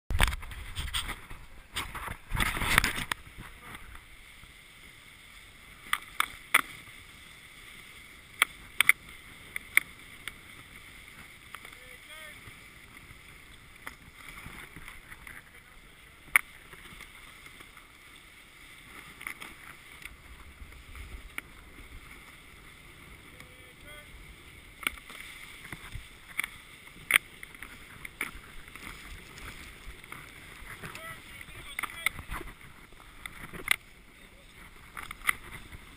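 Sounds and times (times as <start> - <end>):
toboggan scraping over snow: 10.6 - 13.4, 18.8 - 35.9.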